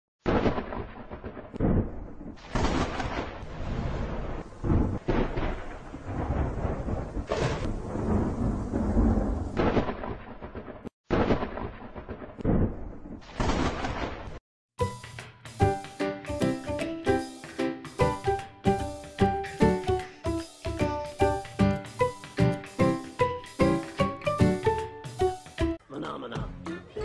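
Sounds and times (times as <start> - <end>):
thunder rumbling and crashing: 1.6 - 10.9.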